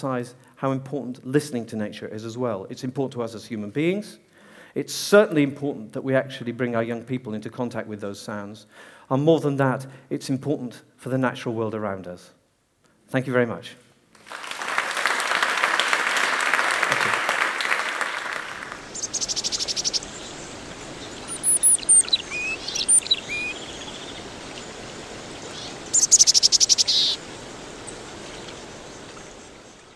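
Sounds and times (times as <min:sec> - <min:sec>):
audience applauding: 0:14.2 - 0:19.1
steady hiss: 0:14.2 - 0:29.9
rapid high bird trills: 0:18.5 - 0:29.9
bird chirps: 0:18.6 - 0:29.9.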